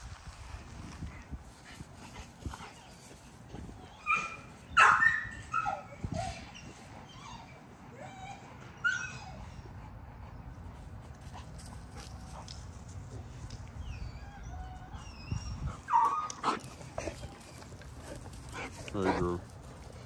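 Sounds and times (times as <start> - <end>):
dogs whining and yipping: 2.7 - 10.1, 13.6 - 20.0.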